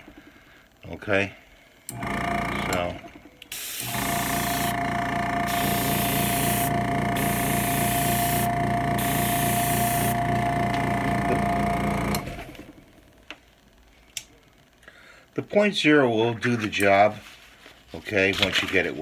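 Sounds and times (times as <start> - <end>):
air compressor whining and humming: 1.9 - 13.3
airbrush air hissing: 3.5 - 4.8, 5.4 - 10.2.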